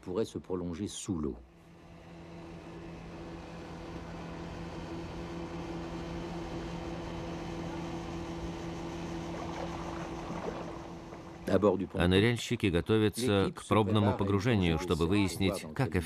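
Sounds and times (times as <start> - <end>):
outboard motor running: 1.3 - 16.0.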